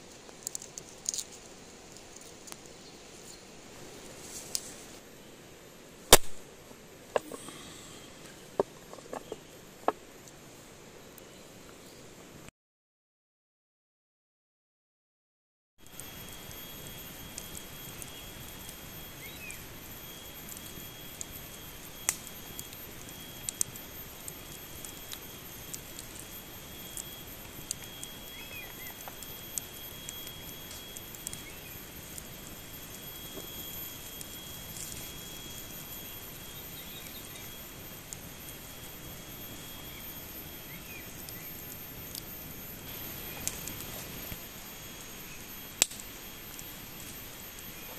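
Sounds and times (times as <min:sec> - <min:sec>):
campfire crackling and popping: 0:00.0 - 0:05.0, 0:06.0 - 0:07.7, 0:15.8 - 0:47.9
thin steady high tone: 0:15.8 - 0:47.9
bird chirping: 0:28.3 - 0:29.0.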